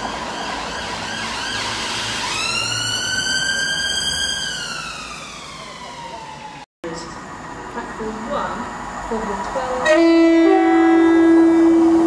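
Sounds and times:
emergency siren: 0.0 - 6.7, 9.8 - 12.0.

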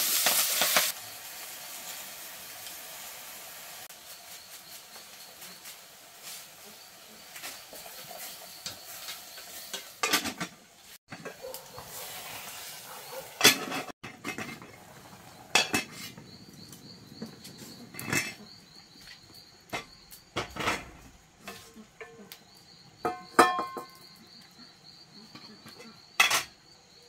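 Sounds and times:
metal cookware clanking: 7.5 - 12.0, 13.0 - 16.3, 17.2 - 18.6, 23.0 - 24.1, 25.3 - 26.6.

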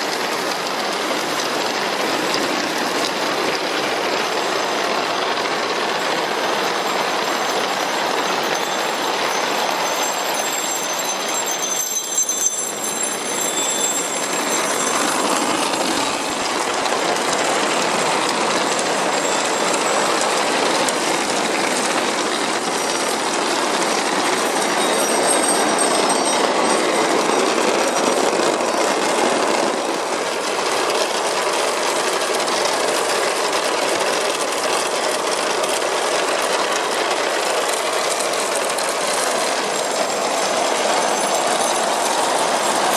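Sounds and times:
glass marbles rattling on wood: 6.5 - 29.7, 34.1 - 42.9.

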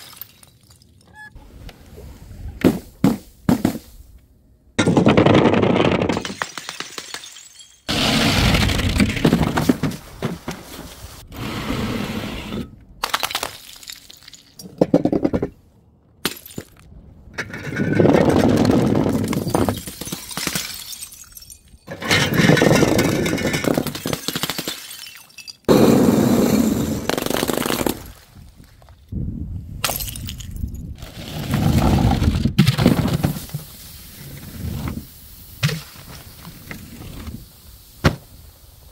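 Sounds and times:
balloons bursting on tiled floor: 27.0 - 28.0.

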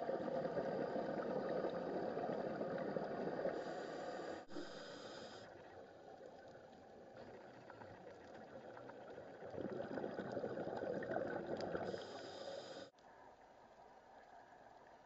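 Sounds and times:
underwater hiss: 3.4 - 5.6, 11.8 - 12.9
diver's bubbles rushing: 8.4 - 11.8.

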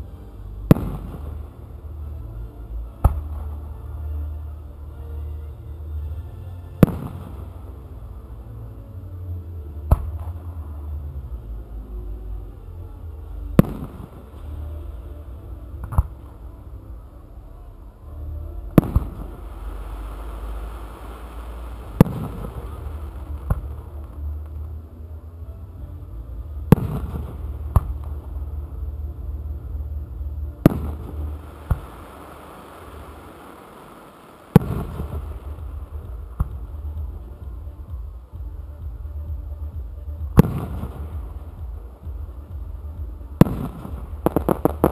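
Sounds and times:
low rumble: 0.0 - 33.3, 34.6 - 44.9
firework bangs: 0.7 - 1.7, 6.8 - 7.7, 13.6 - 14.4, 18.7 - 24.7, 26.7 - 28.4, 30.6 - 37.6, 40.3 - 42.3, 43.3 - 44.9.

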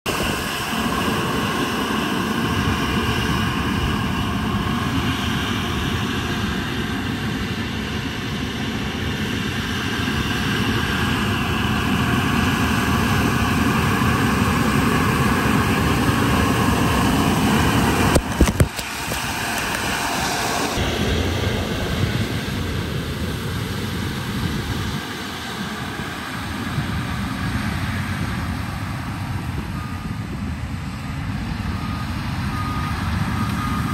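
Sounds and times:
leaf blower blasting air: 13.2 - 28.2.

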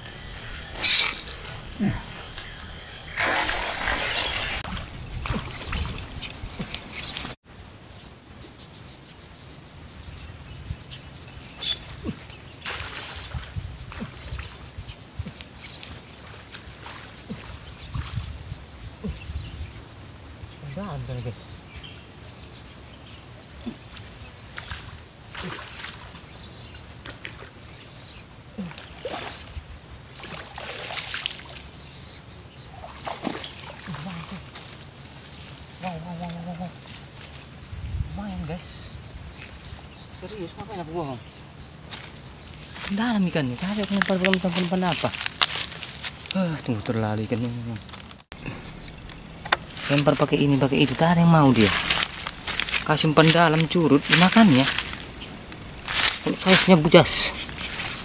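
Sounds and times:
high insect buzz: 0.0 - 58.0
water splashing: 0.7 - 7.4, 11.4 - 19.2, 23.5 - 26.3, 28.6 - 32.0, 32.7 - 37.5, 49.4 - 58.0
fish splashing in water: 3.1 - 7.4, 12.6 - 14.6, 30.1 - 31.8, 32.7 - 34.8.

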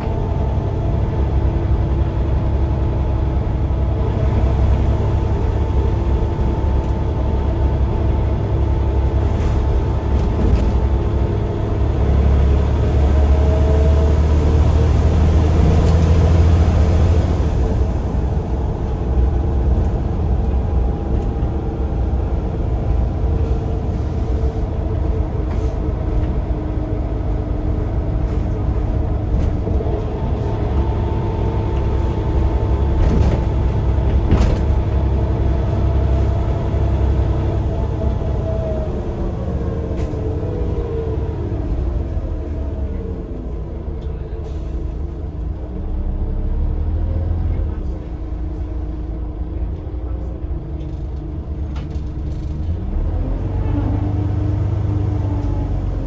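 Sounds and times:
bus engine rumbling: 0.0 - 56.0
clicks and rattles in bus interior: 9.1 - 11.3, 28.0 - 30.9, 31.7 - 36.4, 49.6 - 52.9.

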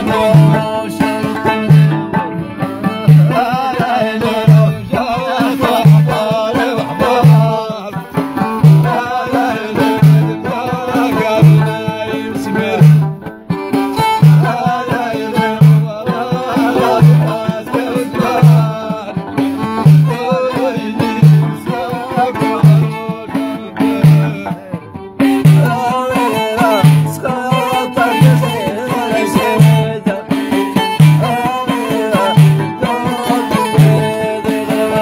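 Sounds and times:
person singing: 0.0 - 2.2, 2.8 - 35.0
frame drum strokes: 0.0 - 35.0
lute: 0.0 - 35.0
violin: 0.0 - 35.0.

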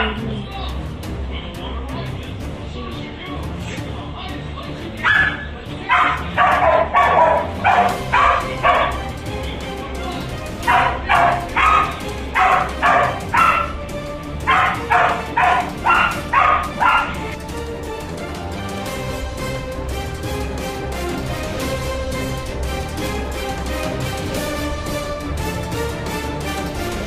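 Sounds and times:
background music: 0.0 - 27.0
dog barking: 5.0 - 9.0, 10.6 - 13.8, 14.4 - 17.4.

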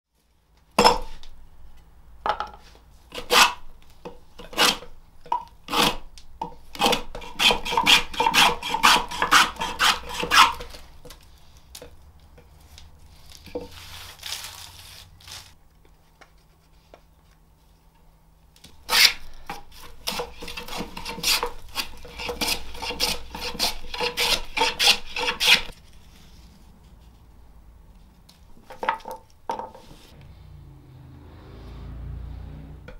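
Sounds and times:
hand plane strokes on wood: 6.8 - 10.8, 18.9 - 25.7.

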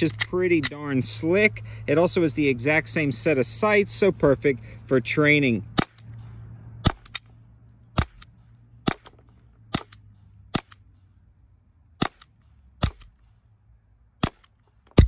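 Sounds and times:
air pistol shots cracking: 6.8 - 7.2, 8.0 - 10.8, 12.0 - 13.2, 14.2 - 15.0.

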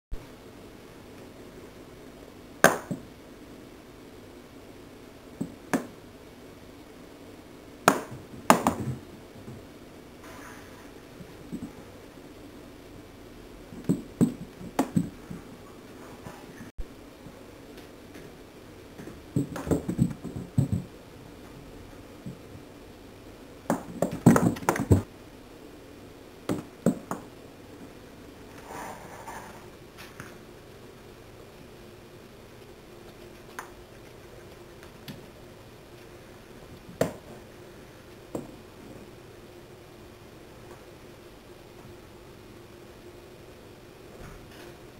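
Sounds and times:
toy knocking on wooden stairs: 13.8 - 15.2, 19.4 - 20.9.

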